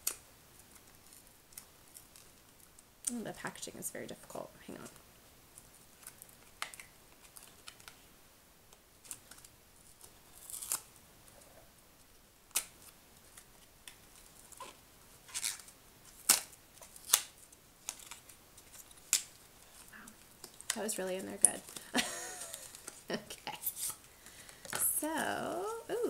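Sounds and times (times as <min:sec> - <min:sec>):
packaging rustling: 0:12.6 - 0:26.0.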